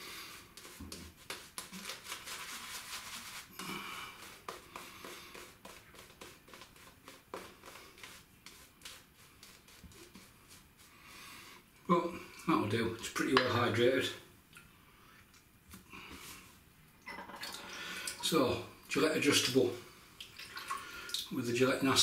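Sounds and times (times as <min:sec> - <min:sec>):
shaving brush wet swishing: 0:00.0 - 0:11.1.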